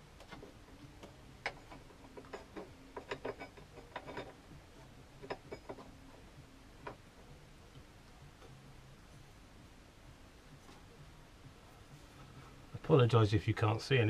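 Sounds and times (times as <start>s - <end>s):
metal drive chain clinking: 1.4s - 4.4s, 5.2s - 5.9s.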